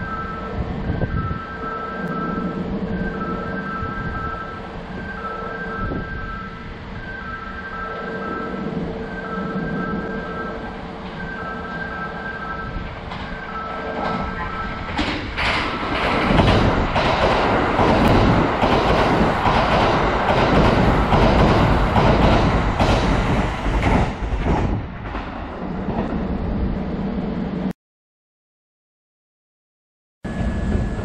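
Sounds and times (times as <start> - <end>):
two-note electronic warning tone: 0.0 - 14.8
train rushing past: 0.0 - 27.7
wheels clattering over rail joints: 12.9 - 26.2.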